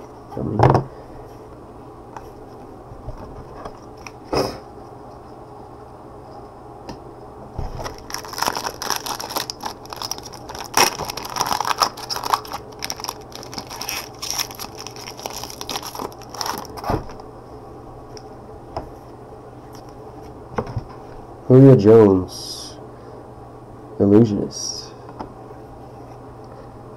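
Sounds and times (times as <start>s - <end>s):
foil wrapper crinkling and tearing: 7.8s - 16.9s.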